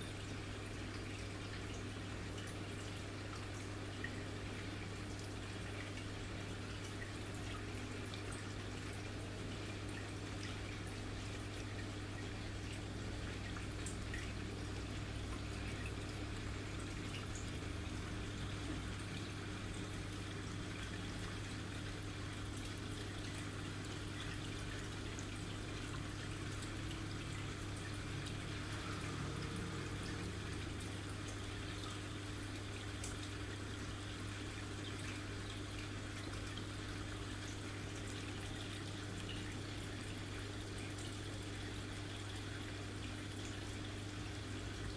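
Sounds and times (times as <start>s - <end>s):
aquarium filter pump hum: 0.0s - 44.9s
water trickling: 0.0s - 44.9s.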